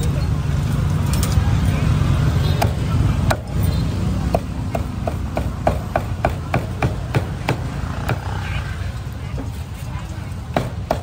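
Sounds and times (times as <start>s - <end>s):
cleaver chopping meat: 4.2s - 8.3s, 10.5s - 11.0s.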